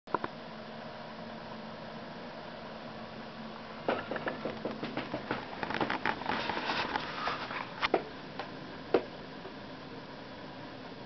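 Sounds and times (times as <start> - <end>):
faint steady hum: 0.1 - 11.0
sharp knocks: 3.9 - 6.0.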